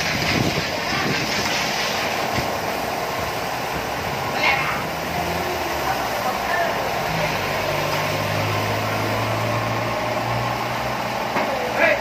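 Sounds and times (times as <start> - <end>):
hose spraying water on car: 0.0 - 12.0.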